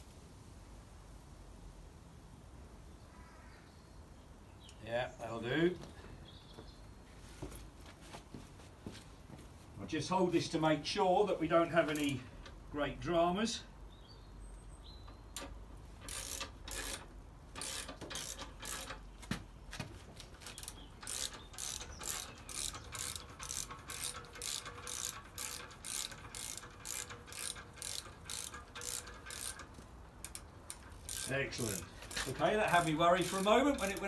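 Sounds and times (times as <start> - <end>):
ratchet clicking: 15.0 - 19.1, 20.2 - 34.0.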